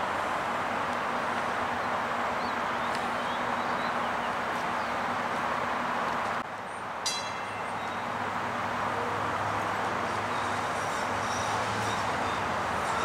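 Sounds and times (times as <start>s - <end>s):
streetcars moving slowly: 0.0s - 13.0s
short high ringing tone: 7.1s - 8.2s.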